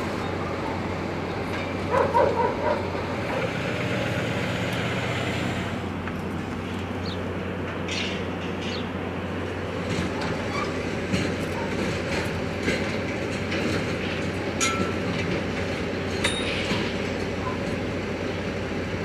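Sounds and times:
generator droning: 0.0s - 19.0s
metal clanks: 9.9s - 17.8s.

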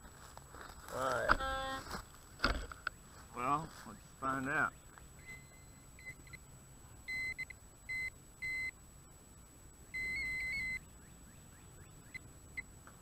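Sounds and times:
metal detector beeping: 5.2s - 6.4s, 7.1s - 8.8s, 9.9s - 10.9s.

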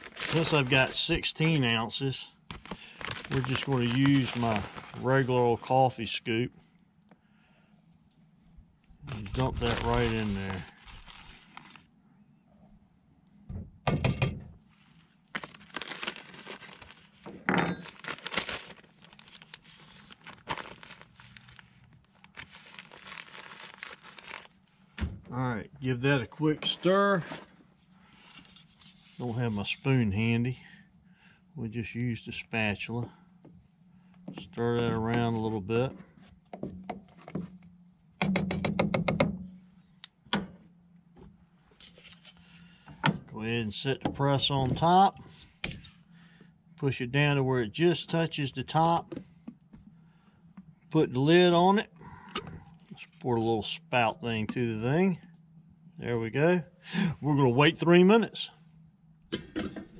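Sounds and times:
plastic bag crinkling: 0.0s - 1.0s, 2.5s - 5.3s, 9.0s - 11.9s, 15.3s - 24.8s
ground coffee being dumped: 9.0s - 11.8s.

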